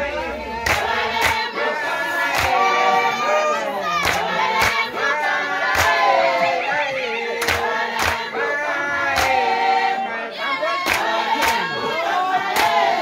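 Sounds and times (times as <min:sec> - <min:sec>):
crowd singing: 0:00.0 - 0:13.0
hand clapping: 0:00.6 - 0:01.5, 0:02.3 - 0:02.6, 0:04.0 - 0:04.9, 0:05.7 - 0:06.0, 0:07.4 - 0:08.3, 0:09.1 - 0:09.5, 0:10.8 - 0:11.8, 0:12.6 - 0:12.9.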